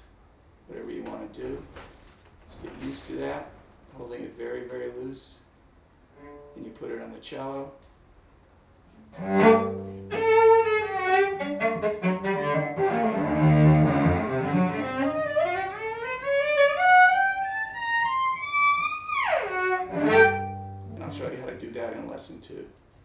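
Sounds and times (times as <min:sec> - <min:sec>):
cello being bowed: 0:06.1 - 0:06.7, 0:09.0 - 0:21.4.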